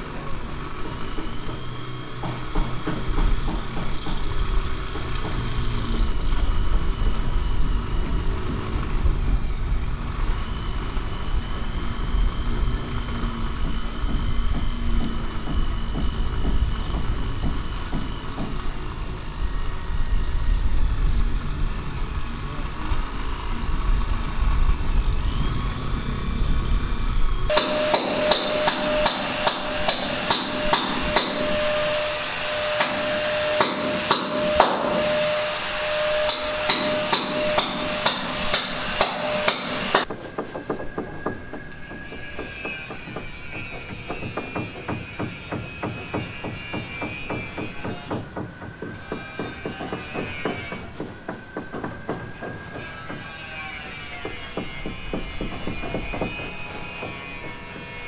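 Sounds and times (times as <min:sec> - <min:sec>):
small tool whining: 0:00.0 - 0:58.0
sharp knocks: 0:27.5 - 0:53.3, 0:54.2 - 0:58.0.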